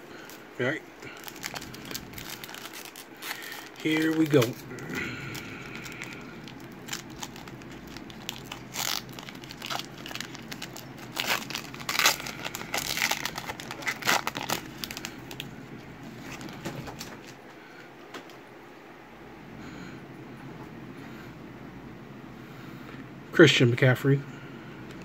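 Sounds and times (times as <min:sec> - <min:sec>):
foil wrapper crinkling and tearing: 0:01.0 - 0:17.4.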